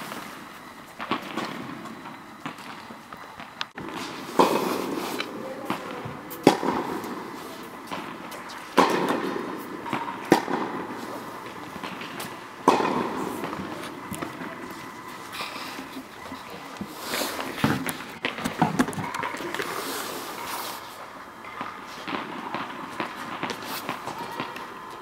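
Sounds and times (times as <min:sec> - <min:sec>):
ball bouncing: 0:05.6 - 0:07.2, 0:07.8 - 0:10.9, 0:11.7 - 0:15.1
racket striking tennis ball: 0:06.3 - 0:14.4.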